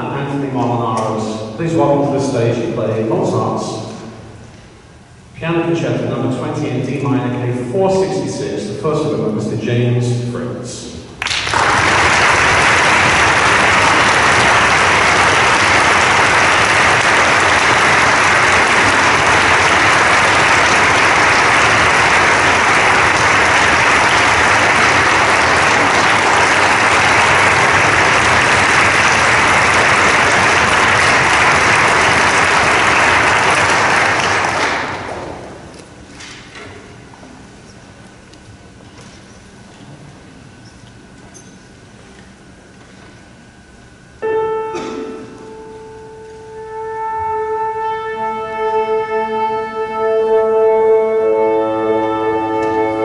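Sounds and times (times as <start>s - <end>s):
audience applauding: 11.2s - 35.8s.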